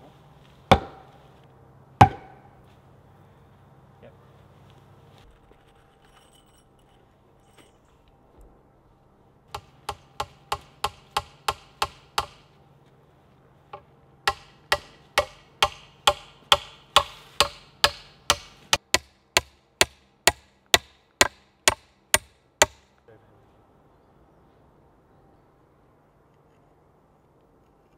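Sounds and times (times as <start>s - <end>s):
hammer striking a nail: 0.7s - 1.1s, 2.0s - 2.5s, 9.5s - 12.5s, 14.2s - 22.9s.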